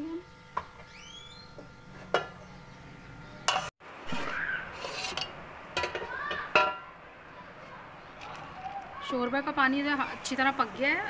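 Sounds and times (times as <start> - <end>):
utensils clinking against a pot: 3.5 - 6.9.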